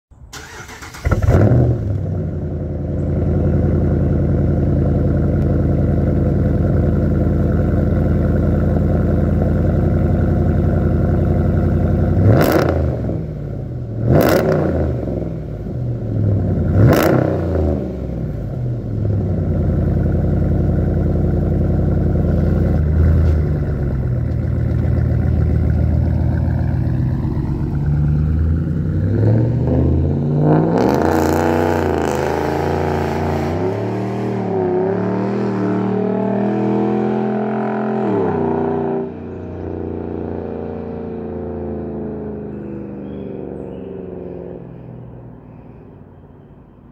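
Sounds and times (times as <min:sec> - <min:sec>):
loud engine starting and idling: 0:00.3 - 0:14.7, 0:15.8 - 0:29.8
engine revving: 0:00.3 - 0:44.4.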